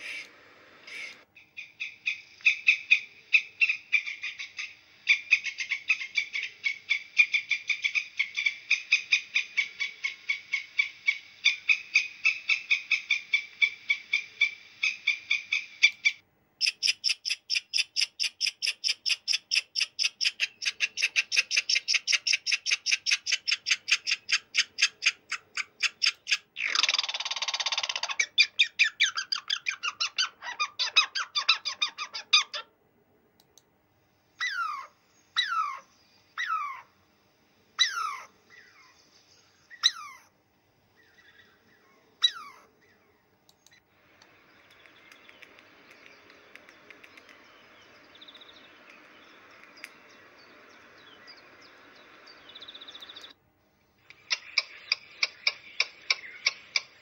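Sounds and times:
fast high-pitched animal chirps: 16.6 - 32.6, 42.2 - 42.6.

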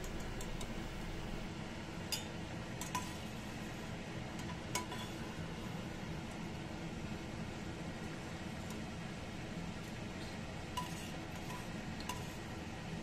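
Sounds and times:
low steady hiss: 0.0 - 2.3.

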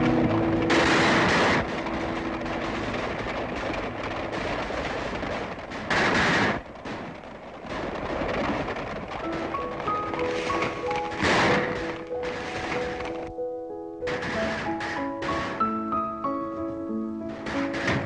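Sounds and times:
film music: 0.0 - 4.7, 9.2 - 18.0
loud gunshots: 0.0 - 8.7, 10.2 - 13.1, 17.4 - 18.0
galloping hooves: 0.0 - 13.3, 14.1 - 18.0.

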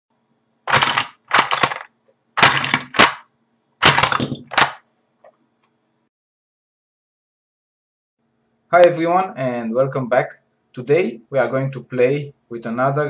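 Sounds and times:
plastic toys clattering: 0.7 - 3.2, 3.8 - 4.8.

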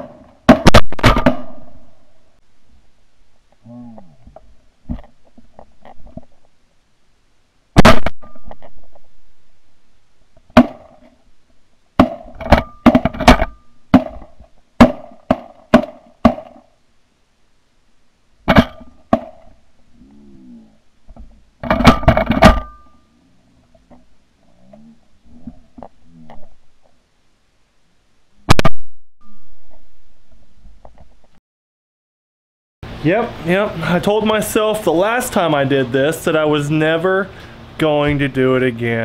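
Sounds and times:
shotgun shots: 0.0 - 1.8, 7.8 - 8.4.

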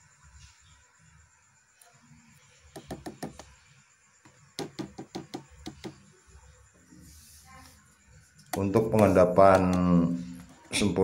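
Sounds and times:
plastic spoon tapping plastic tub: 2.7 - 3.5, 4.6 - 6.1, 8.5 - 10.8.

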